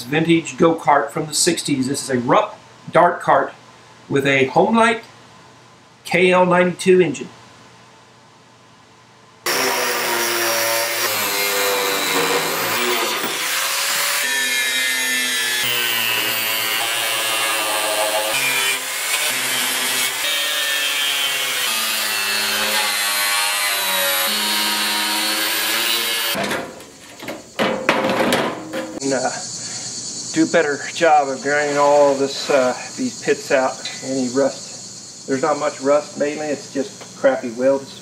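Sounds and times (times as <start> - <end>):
angle grinder grinding metal: 9.5 - 26.4
metal frame knocks: 26.4 - 29.0.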